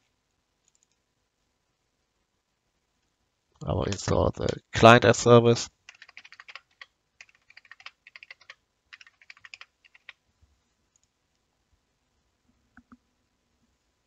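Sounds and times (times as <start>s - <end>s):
fast typing on keyboard: 5.9s - 10.2s.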